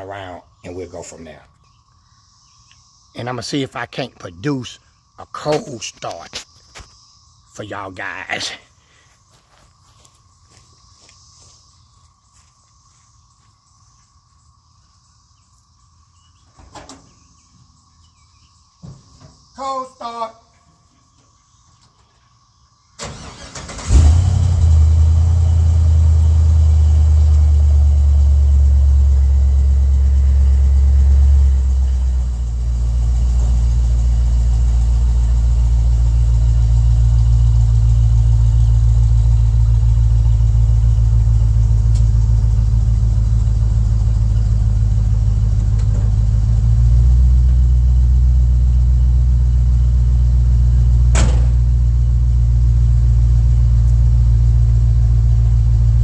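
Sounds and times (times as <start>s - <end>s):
engine cranking: 23.0s - 25.2s
deep engine idle: 23.8s - 56.0s.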